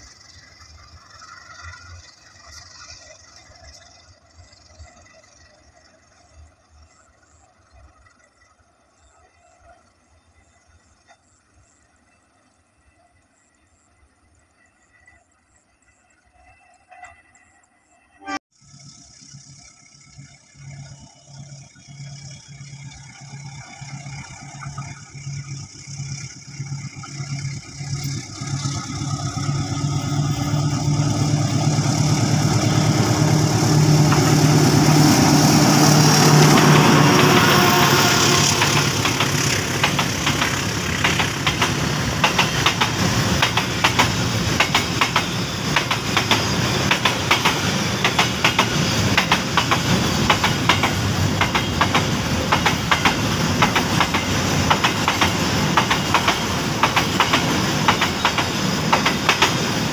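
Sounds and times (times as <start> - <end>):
locomotive engine drone: 0.0 - 59.9
wheels clattering over rail joints: 18.6 - 59.9.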